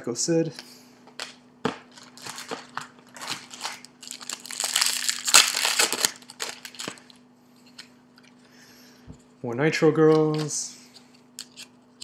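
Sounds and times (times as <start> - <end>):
wrapper crinkling: 1.2 - 7.2.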